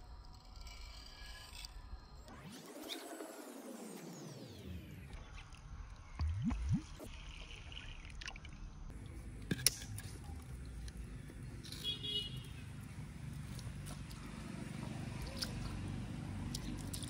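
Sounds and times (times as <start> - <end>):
low rising sound: 6.2 - 7.1
water trickling into a bowl: 6.2 - 9.0.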